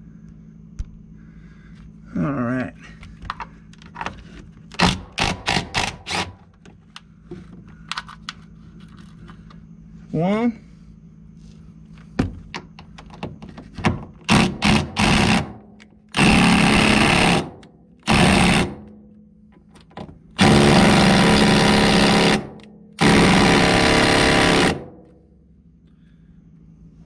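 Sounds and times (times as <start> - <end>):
impact driver hammering: 4.8 - 6.4, 14.2 - 19.0, 20.4 - 25.1.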